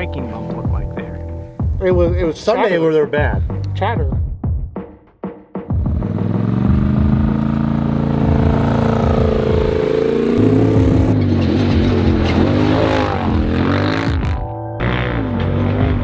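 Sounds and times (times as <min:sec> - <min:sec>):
engine revving: 0:05.7 - 0:16.0.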